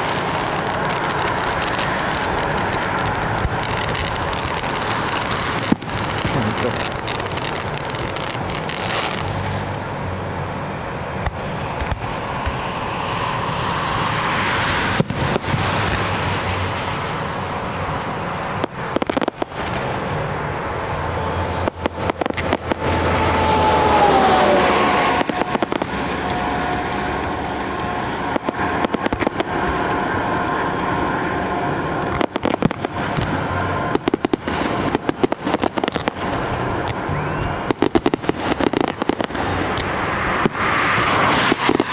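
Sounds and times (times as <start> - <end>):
firework crackling: 0.0 - 41.9
falling firework whistle: 21.1 - 41.9
firework shell bursts: 21.5 - 30.9, 31.9 - 41.9.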